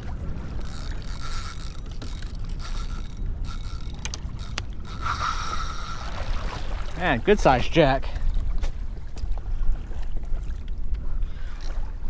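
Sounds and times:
fishing reel clicking: 0.5s - 7.0s, 11.5s - 11.8s.

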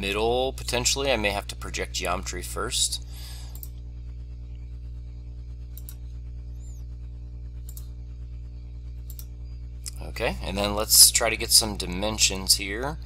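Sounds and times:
low electrical hum: 0.0s - 13.0s
faint mouse clicks: 7.6s - 7.9s.

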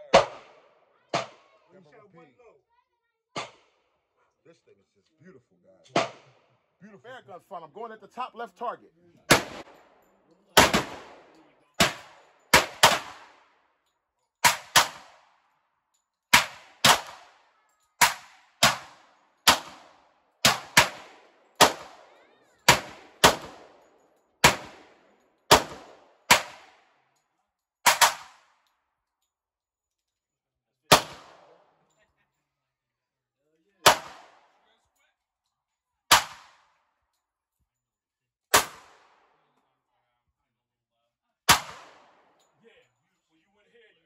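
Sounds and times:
pistol shots: 0.0s - 1.5s, 3.4s - 3.8s, 5.9s - 6.4s, 9.3s - 10.0s, 10.6s - 13.6s, 14.4s - 15.4s, 16.3s - 17.4s, 18.0s - 26.9s, 27.8s - 28.6s, 30.9s - 31.7s, 33.8s - 34.6s, 36.1s - 36.8s, 38.5s - 39.4s, 41.5s - 42.3s.

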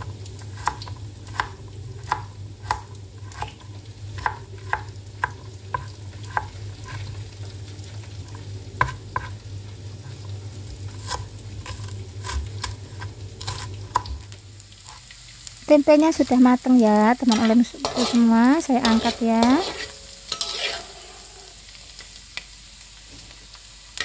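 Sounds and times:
food sizzling in oil: 0.0s - 24.0s
knife chopping on cutting board: 0.6s - 3.6s.

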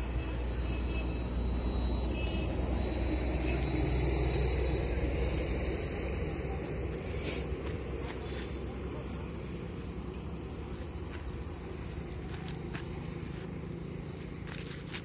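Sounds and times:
hiss of noise: 6.9s - 7.9s.

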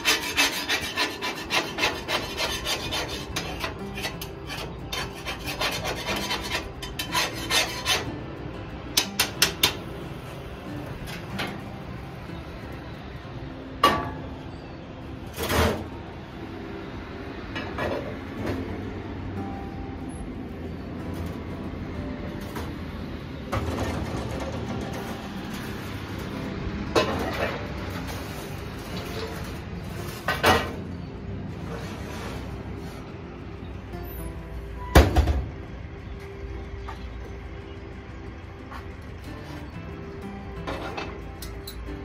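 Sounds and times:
metal cookware clattering: 0.0s - 8.1s, 9.0s - 9.9s, 26.9s - 28.4s.

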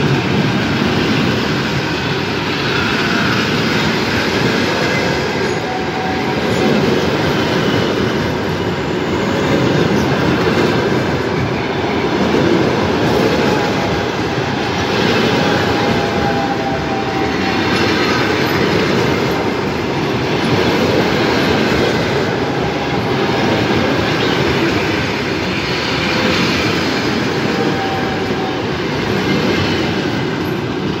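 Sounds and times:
clickety-clack over rail joints: 0.0s - 31.0s
train wheels rumbling on rails: 0.0s - 31.0s.

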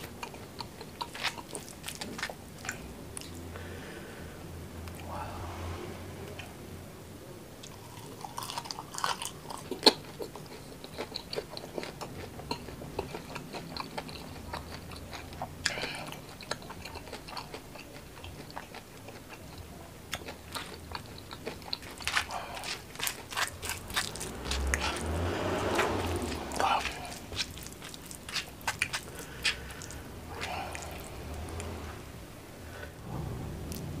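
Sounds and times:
crispy food chewing: 0.0s - 3.4s, 7.6s - 31.8s
wet rustle of dipping food: 20.5s - 31.8s.

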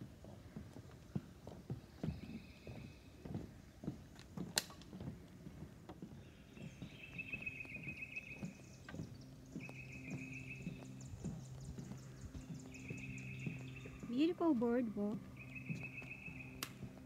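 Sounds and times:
footsteps on wooden boardwalk: 0.0s - 17.0s.

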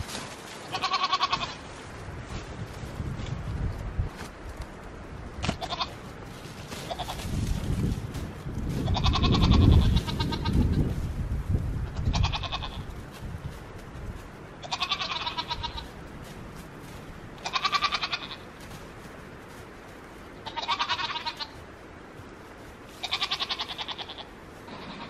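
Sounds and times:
goat bleating: 0.6s - 1.6s, 5.4s - 6.1s, 6.7s - 7.4s, 8.7s - 10.9s, 11.8s - 13.0s, 14.6s - 16.0s, 17.4s - 18.6s, 20.4s - 21.6s, 22.9s - 25.0s.

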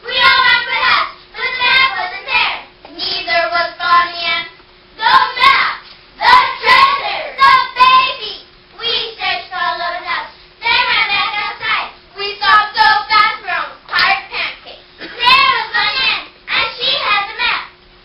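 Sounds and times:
girls reciting in chorus: 5.0s - 17.4s.

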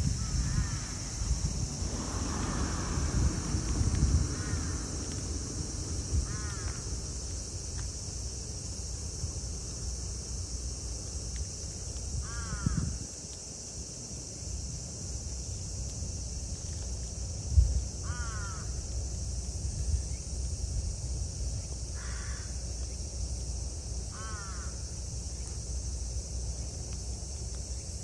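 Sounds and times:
crow cawing: 4.4s - 4.8s, 6.2s - 6.8s, 18.1s - 18.7s, 24.1s - 24.8s.

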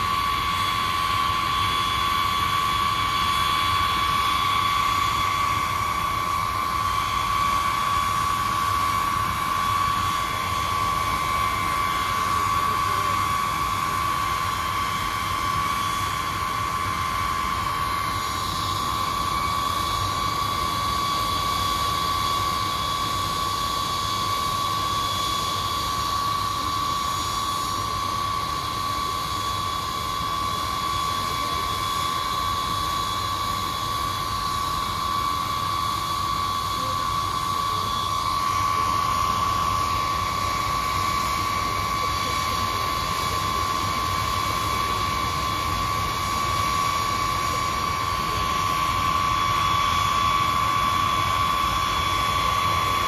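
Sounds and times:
jet engines whining: 0.0s - 53.0s.

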